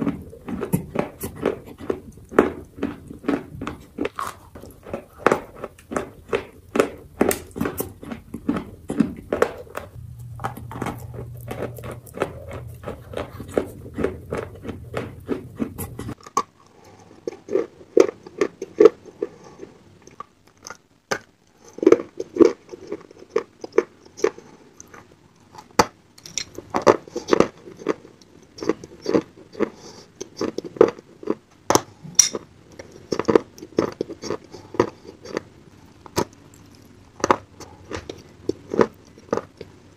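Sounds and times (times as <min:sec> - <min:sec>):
chewing: 0:00.0 - 0:39.9
low hum: 0:08.6 - 0:16.2.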